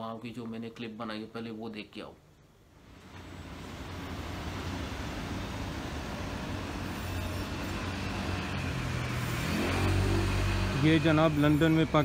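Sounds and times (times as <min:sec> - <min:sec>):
traffic rumble and hiss: 0:02.8 - 0:12.0
bus engine hum: 0:03.1 - 0:12.0.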